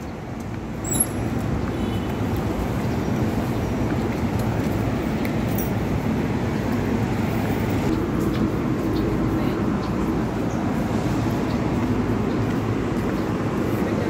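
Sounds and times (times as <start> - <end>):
low rumble of traffic: 0.0 - 14.0.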